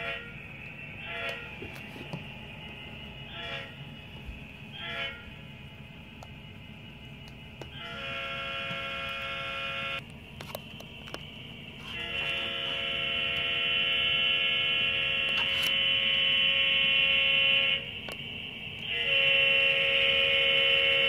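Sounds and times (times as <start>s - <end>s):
electronic buzzing tone: 7.7s - 10.0s, 11.8s - 18.1s, 18.8s - 21.0s.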